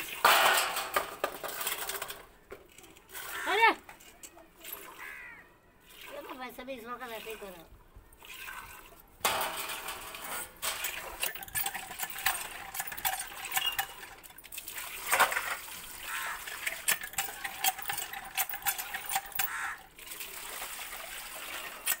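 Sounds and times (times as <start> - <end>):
milk squirting into steel pail: 8.2 - 9.0, 9.6 - 22.0.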